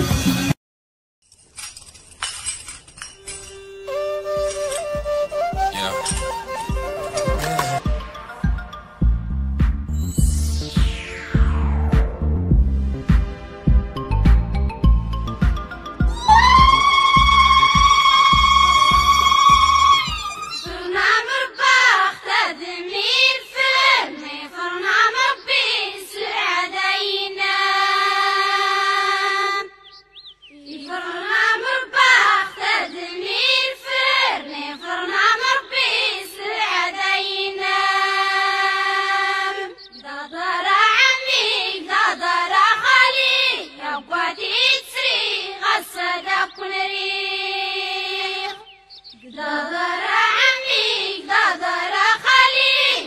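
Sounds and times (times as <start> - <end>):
high voice singing: 3.4 - 7.8.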